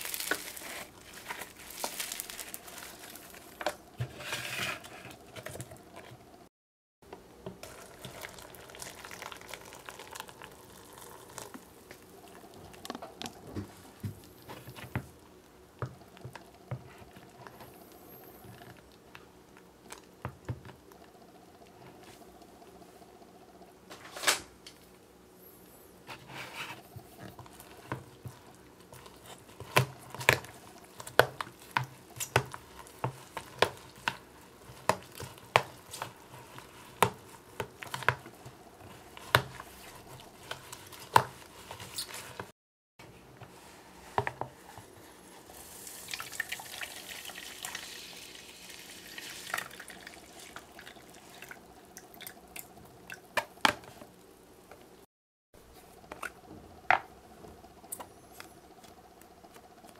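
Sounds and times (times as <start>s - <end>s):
hissing of mixing powder: 43.2s - 52.1s.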